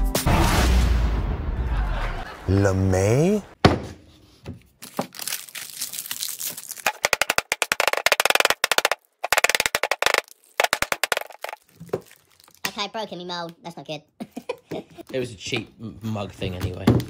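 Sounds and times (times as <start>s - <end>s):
plastic mould crackling: 4.8s - 12.8s.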